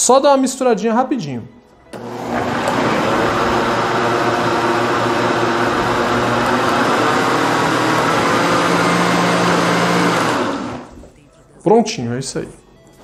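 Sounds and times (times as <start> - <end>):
blender running: 2.0 - 10.9.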